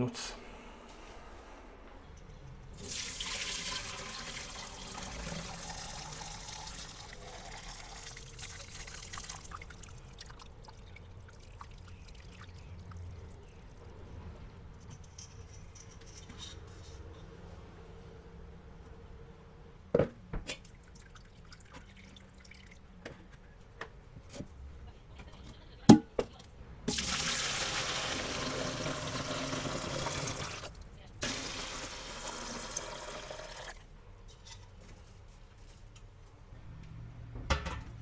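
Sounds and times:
liquid pouring into a metal pot: 2.8 - 13.0, 26.9 - 33.8.

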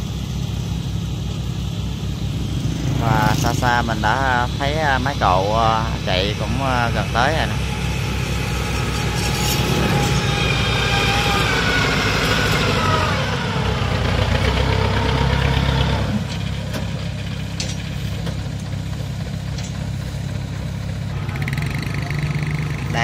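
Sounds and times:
harvester engine whining: 0.0 - 23.0.

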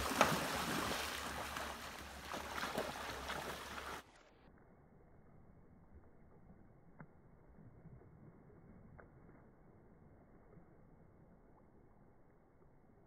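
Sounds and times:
dogs splashing through water: 0.0 - 4.1.

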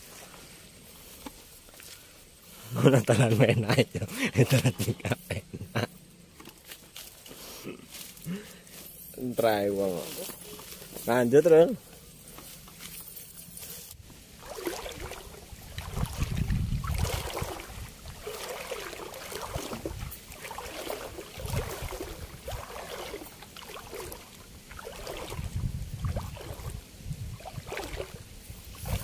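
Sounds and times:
footsteps wading through water: 0.0 - 3.5, 14.2 - 29.0.

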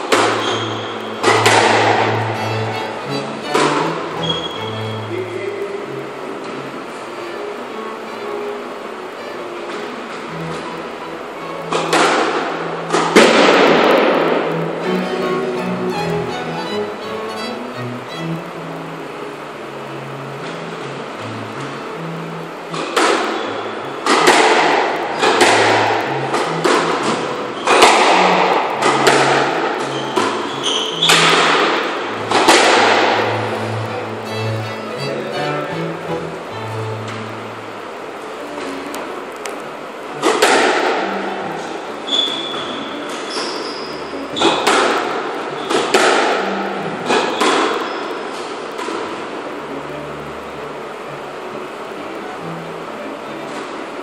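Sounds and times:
squash ball hits: 0.1 - 2.2, 11.7 - 14.6, 22.7 - 23.4, 24.0 - 33.2, 40.2 - 41.0, 44.4 - 46.4, 47.0 - 47.9
shoes squeaking on wooden floor: 0.2 - 5.1, 29.8 - 31.5.

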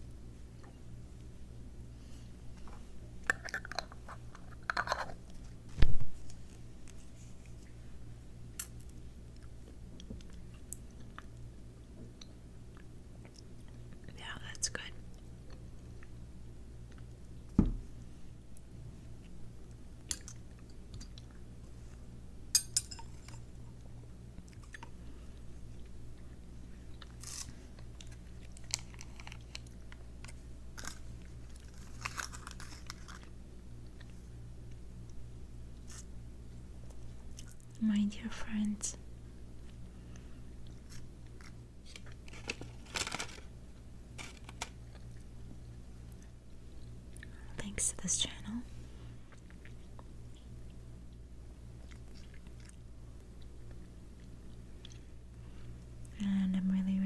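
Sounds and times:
wet chewing sounds: 49.3 - 55.2.

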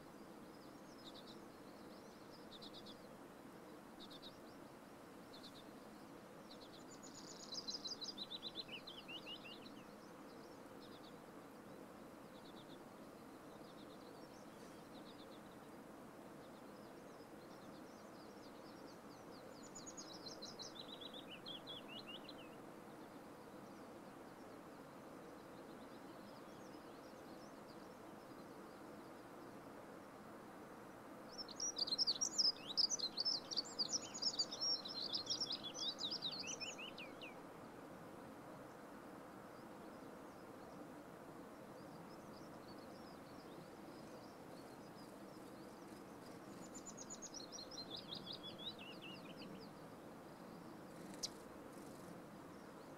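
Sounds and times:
faint steady hiss: 0.0 - 52.9
songbird trilling: 50.9 - 52.1.

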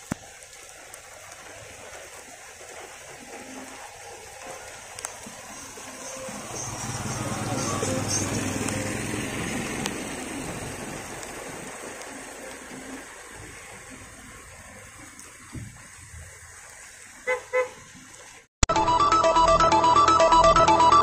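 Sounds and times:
heavy rain on pavement: 0.0 - 18.5
vehicle engine: 3.8 - 15.0.

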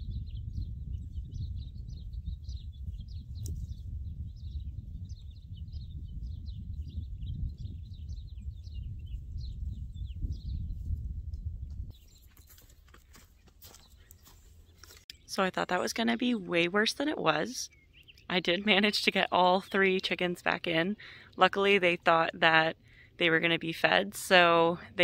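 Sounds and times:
steady low rumble: 0.0 - 11.9
small birds chirping: 0.0 - 25.0.

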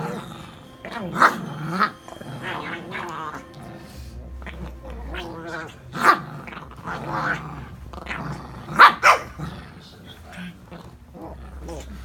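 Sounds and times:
dog play-growling: 0.0 - 12.0
dog barking: 8.7 - 9.4.

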